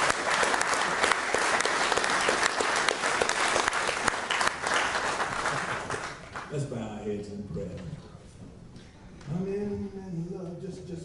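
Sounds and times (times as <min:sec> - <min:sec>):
people applauding: 0:00.0 - 0:06.6.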